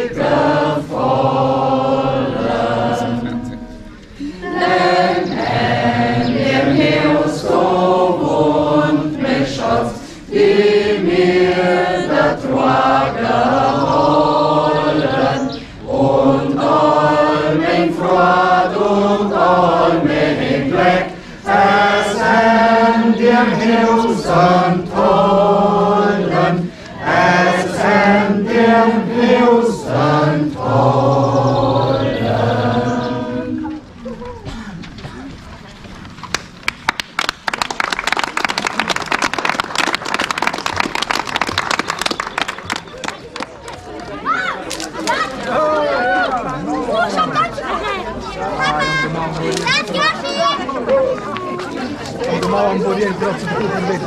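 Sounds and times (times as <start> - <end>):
group singing unaccompanied: 0.0 - 34.1, 51.7 - 54.0.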